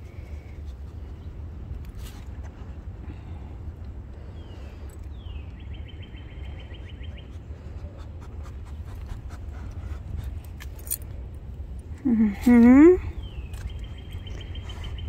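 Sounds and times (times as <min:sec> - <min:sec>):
steady low rumble: 0:00.0 - 0:15.0
dogs sniffing: 0:07.0 - 0:10.9, 0:13.8 - 0:15.0
small bird singing a trill: 0:13.1 - 0:15.0.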